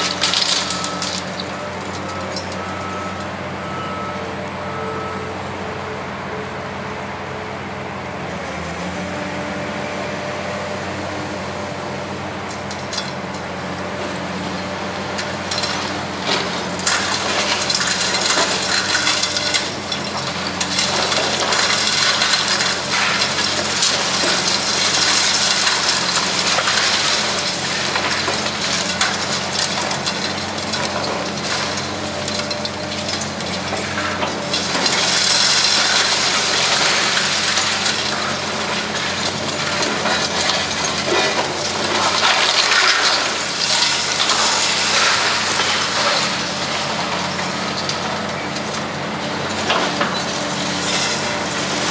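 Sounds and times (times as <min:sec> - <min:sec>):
rubble clattering: 0:15.2 - 0:48.6.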